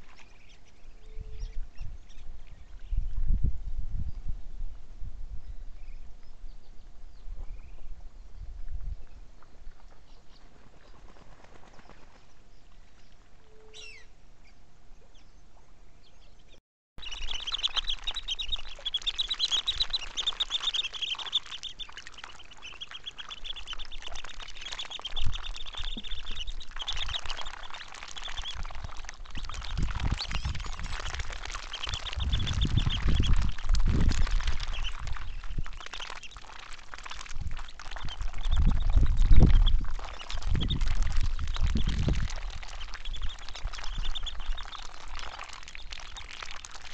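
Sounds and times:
ducks whistling chatter: 17.0 - 28.7.

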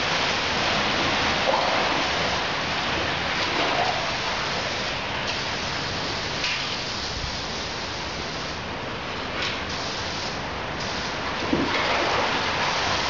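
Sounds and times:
running water: 0.0 - 5.2
steady rain: 0.0 - 13.0.

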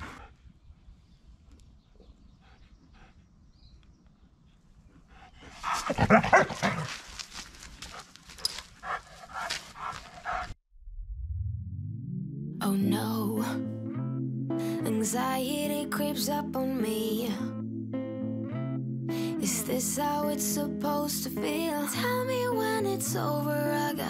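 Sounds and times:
dog barking rapidly: 5.7 - 6.9.

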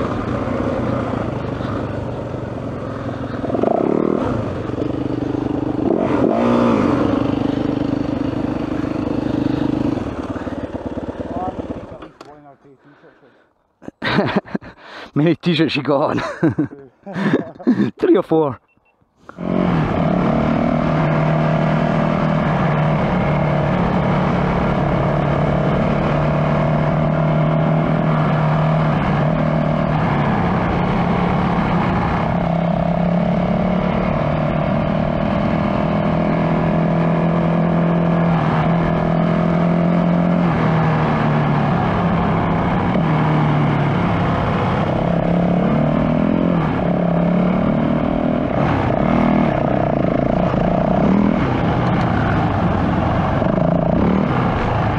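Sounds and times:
dirt bike engine running: 0.0 - 12.2.

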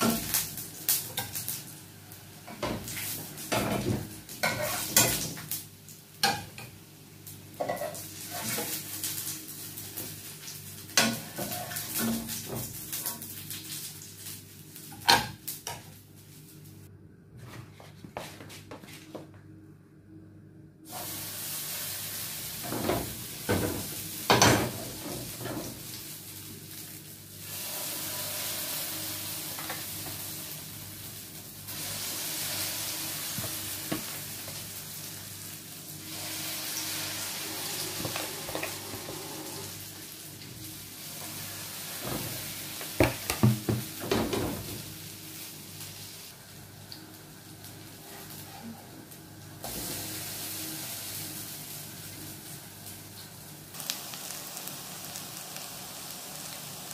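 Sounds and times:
pancakes sizzling in hot oil: 0.0 - 16.6, 20.9 - 48.5, 49.1 - 56.9.

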